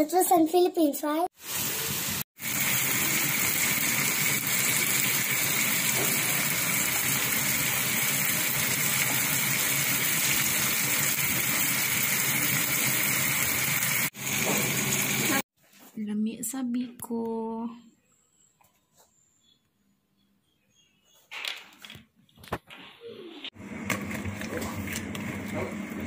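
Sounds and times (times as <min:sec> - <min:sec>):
food sizzling in a pan: 0:01.4 - 0:15.4.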